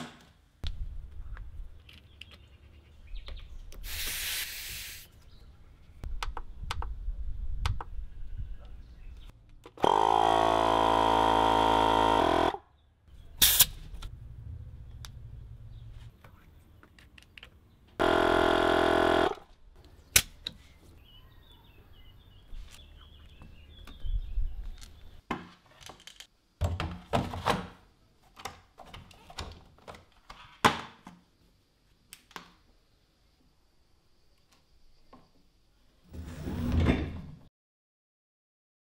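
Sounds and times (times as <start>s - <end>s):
electric tyre inflator running: 9.8s - 12.6s, 18.0s - 19.4s.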